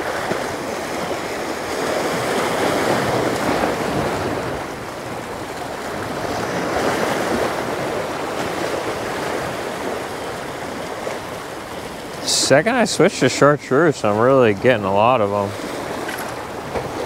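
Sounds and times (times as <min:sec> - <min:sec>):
surf washing against rocks: 0:00.0 - 0:17.0.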